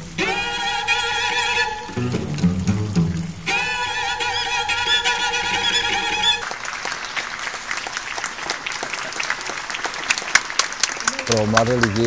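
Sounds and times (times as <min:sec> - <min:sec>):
classical ensemble chord: 0:00.0 - 0:03.8
audience applause: 0:02.0 - 0:12.0.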